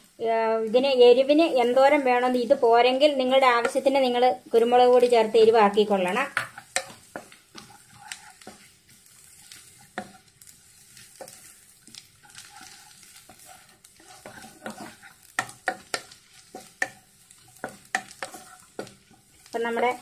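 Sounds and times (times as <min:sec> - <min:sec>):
light sizzle: 0:00.0 - 0:20.0
spatula stirring and scraping pan: 0:00.5 - 0:20.0
spatula clicks and knocks on pan: 0:15.4 - 0:17.0.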